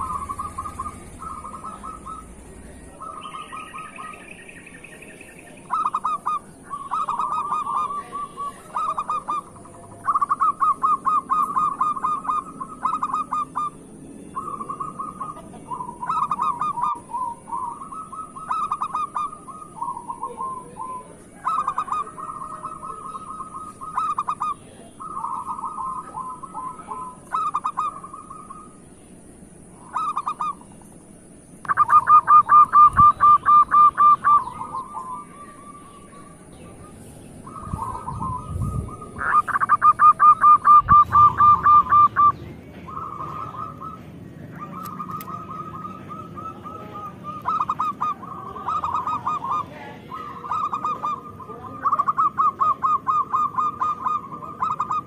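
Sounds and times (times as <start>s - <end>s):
doves cooing: 0.0s - 55.0s.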